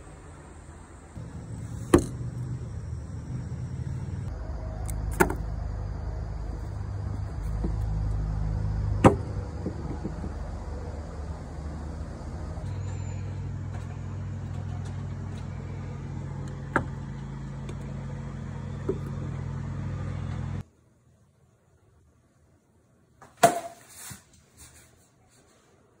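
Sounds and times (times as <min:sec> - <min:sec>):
steady low hum: 0:00.0 - 0:20.7
wooden bat hitting ball: 0:01.7 - 0:02.6, 0:09.0 - 0:10.4, 0:23.2 - 0:23.9
small knocks: 0:09.0 - 0:10.6.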